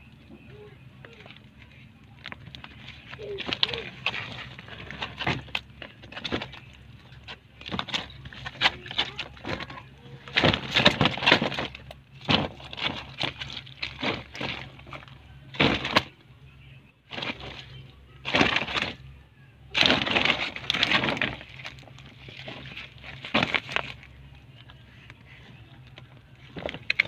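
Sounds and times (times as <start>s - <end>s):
wet frogs rustling and scraping: 0.8s - 16.2s, 17.0s - 27.0s.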